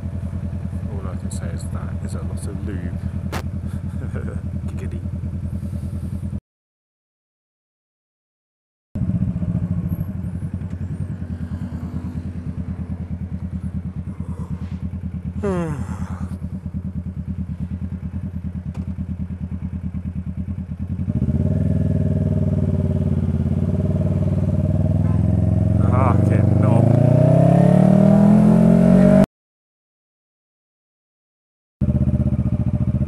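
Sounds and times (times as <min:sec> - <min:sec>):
motorcycle engine idling: 0:00.0 - 0:06.4, 0:09.0 - 0:26.8, 0:31.8 - 0:33.0.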